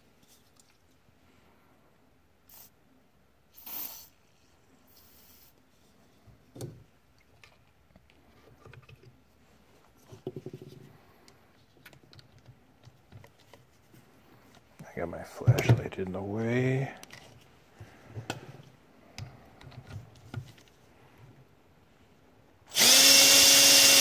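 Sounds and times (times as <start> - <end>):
aerosol spray hissing: 3.5 - 4.1.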